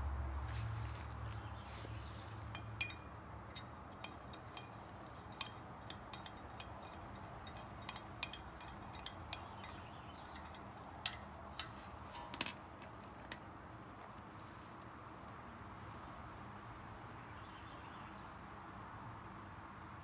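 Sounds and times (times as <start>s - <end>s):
metallic clicks of lug nuts: 2.5s - 13.5s.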